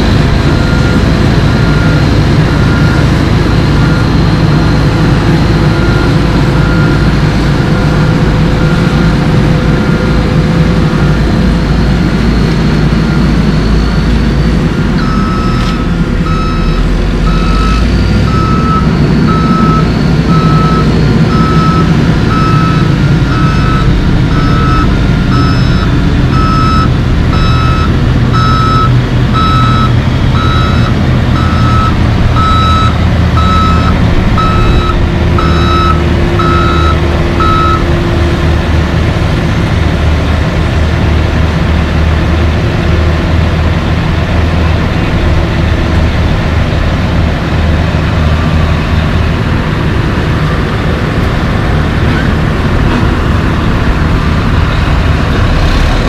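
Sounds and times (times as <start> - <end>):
diesel engines rumbling: 0.0 - 56.0
backup alarm beeping: 0.1 - 38.0.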